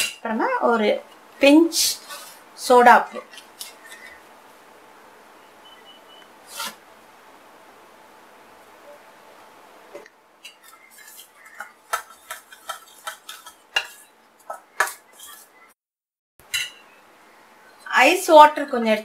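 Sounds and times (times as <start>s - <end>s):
spoon clinking against steel bowl: 16.5s - 16.9s.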